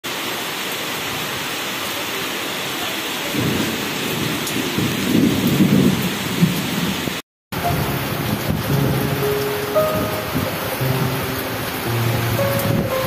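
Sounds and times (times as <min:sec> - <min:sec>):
steady rain falling: 0:00.0 - 0:13.0
low rumble of thunder: 0:03.4 - 0:07.0, 0:08.0 - 0:09.2.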